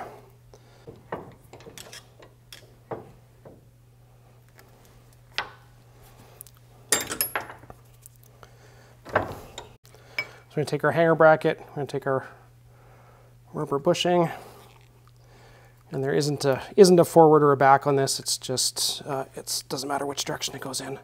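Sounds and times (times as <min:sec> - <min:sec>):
metal parts clinking: 0:06.9 - 0:07.7.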